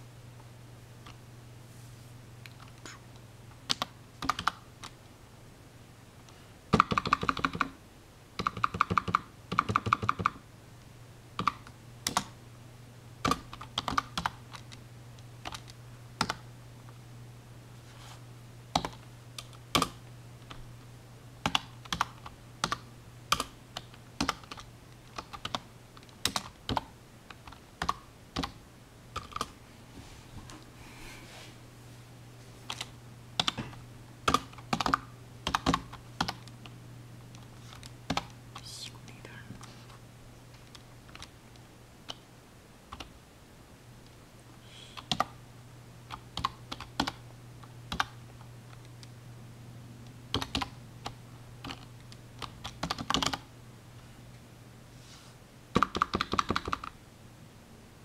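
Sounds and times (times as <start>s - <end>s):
steady low hum: 0.0s - 58.0s
typing on computer keyboard: 3.7s - 4.6s, 6.7s - 7.8s, 8.4s - 10.4s, 11.4s - 12.3s, 13.2s - 14.8s, 15.4s - 16.4s, 18.7s - 20.6s, 21.4s - 28.6s, 29.2s - 29.5s, 32.7s - 36.5s, 37.7s - 38.3s, 42.9s - 43.1s, 45.0s - 45.3s, 46.1s - 47.2s, 47.9s - 48.2s, 50.3s - 53.5s, 55.7s - 57.0s.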